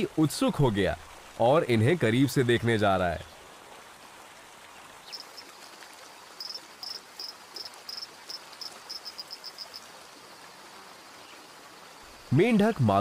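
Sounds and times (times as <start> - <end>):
faint steady hiss: 0.0 - 13.0
frog calling in high chirps: 5.1 - 5.5, 6.4 - 9.9.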